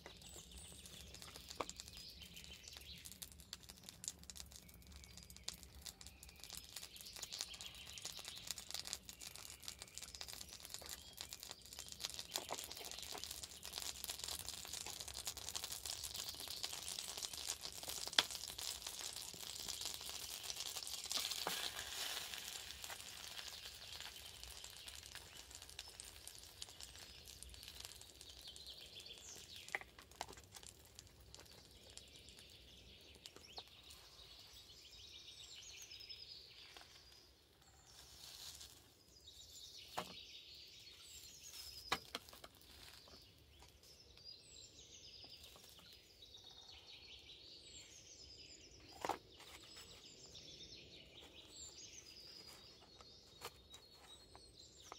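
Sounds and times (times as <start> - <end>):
songbirds chirping: 0.0 - 54.9
meat sizzling in a frying pan: 1.0 - 32.5.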